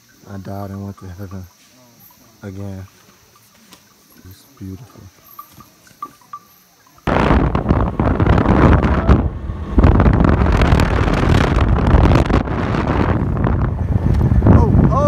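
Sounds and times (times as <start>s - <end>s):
wind buffeting microphone: 7.0s - 15.0s
vehicle engine running: 7.1s - 15.0s.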